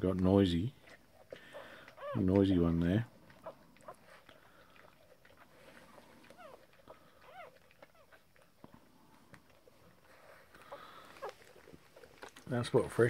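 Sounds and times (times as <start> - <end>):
puppies squeaking: 0.8 - 8.5, 9.8 - 12.4.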